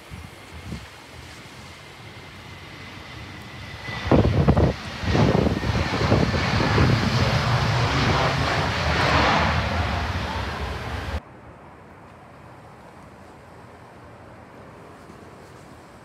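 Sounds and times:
wind buffeting microphone: 0.0 - 11.2
jet engines roaring: 0.2 - 11.2.

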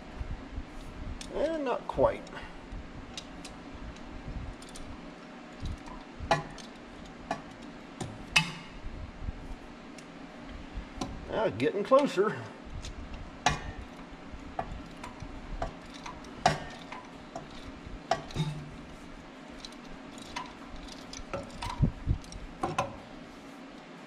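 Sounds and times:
metal clicks and knocks: 5.6 - 8.7, 14.6 - 18.9, 19.6 - 23.0.

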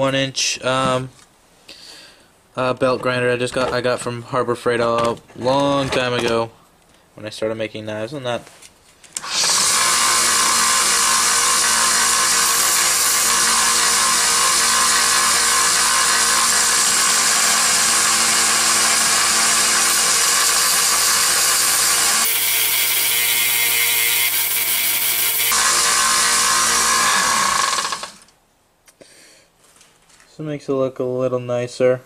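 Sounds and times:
belt grinder grinding metal: 9.2 - 28.3.

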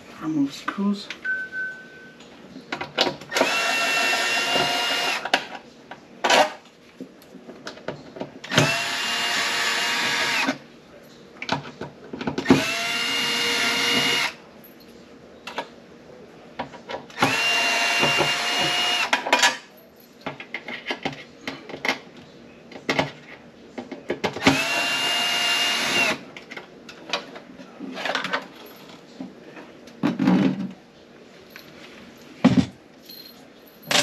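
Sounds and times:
cordless drill motor whine: 8.5 - 10.5, 12.5 - 14.4, 24.4 - 26.2.

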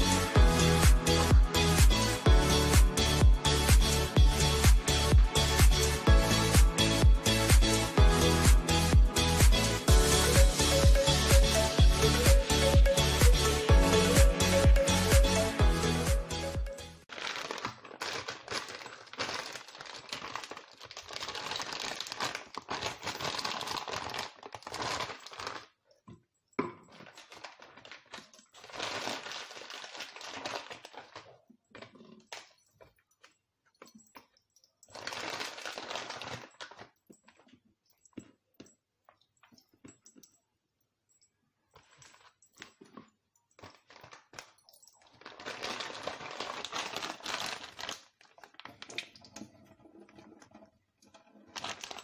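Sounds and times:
plastic packaging crinkling: 17.0 - 26.0, 26.7 - 33.4, 34.0 - 37.6, 41.7 - 52.0.

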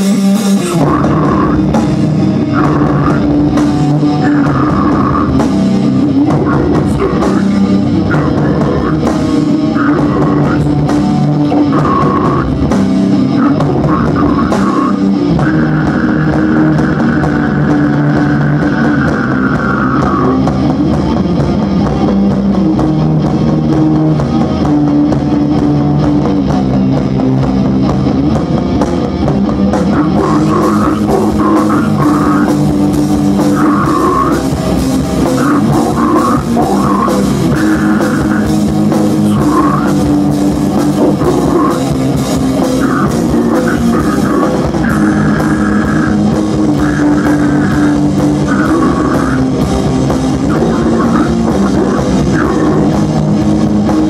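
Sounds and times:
distorted electric guitars: 0.0 - 54.0
drum kit: 0.0 - 54.0.

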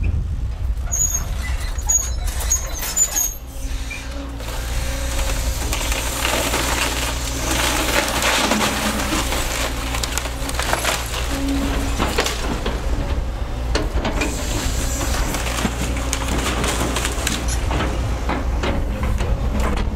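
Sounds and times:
excavator diesel engine rumbling: 0.0 - 19.9
short high squeaks: 0.9 - 4.2
wood debris crunching: 3.6 - 19.9.

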